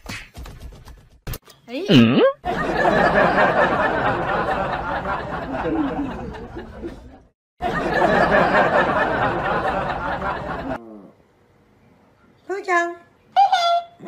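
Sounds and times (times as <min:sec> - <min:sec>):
crowd laughing and chattering: 0:02.5 - 0:10.8.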